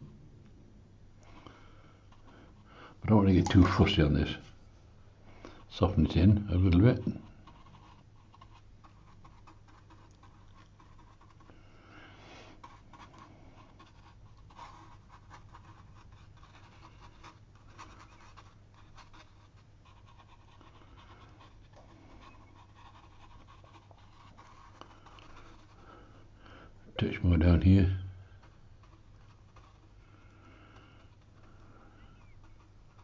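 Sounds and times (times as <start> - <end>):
low steady hum: 0.0 - 33.0
brush swishing on damp paper: 5.6 - 26.3, 28.2 - 33.0.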